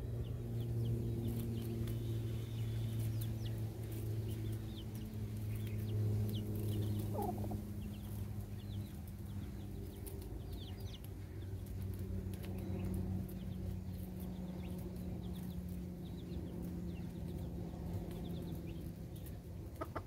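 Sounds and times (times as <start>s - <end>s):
steady low hum: 0.0s - 20.0s
chick peeping: 0.3s - 20.0s
hen calling: 7.1s - 7.6s.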